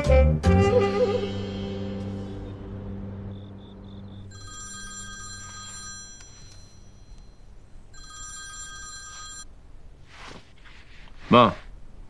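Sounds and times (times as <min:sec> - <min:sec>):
phone electronic ringtone: 0:04.1 - 0:09.5.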